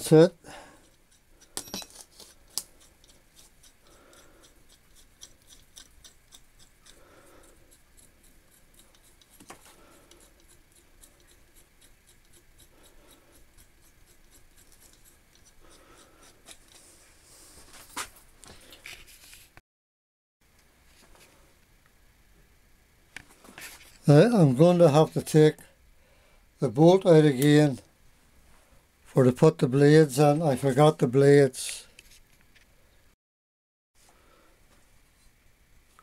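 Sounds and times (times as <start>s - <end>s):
screws ticking and rubbing: 0.8s - 16.9s.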